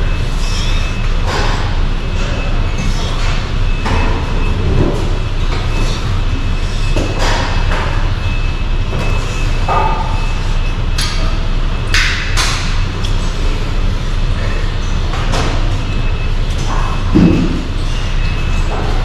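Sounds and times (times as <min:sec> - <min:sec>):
steady low rumble: 0:15.9 - 0:18.5.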